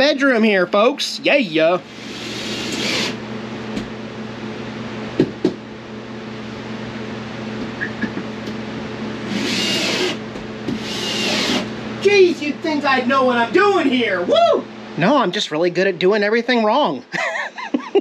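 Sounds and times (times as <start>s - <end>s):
fans humming: 0.0s - 18.0s
drill motor whining: 1.8s - 3.2s, 9.2s - 11.7s.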